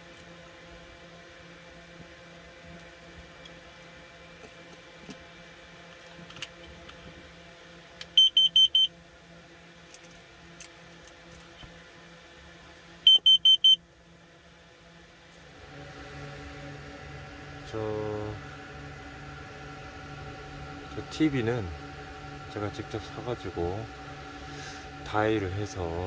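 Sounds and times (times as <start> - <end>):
alarm short high beeps: 8.2 - 8.9, 13.1 - 13.8.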